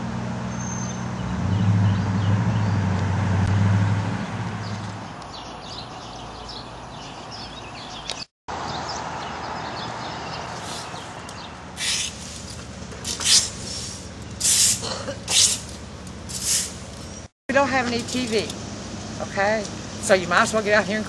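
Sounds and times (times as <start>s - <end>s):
birds chirping faintly: 4.6s - 12.2s
rake scraping on pavement: 10.3s - 17.2s.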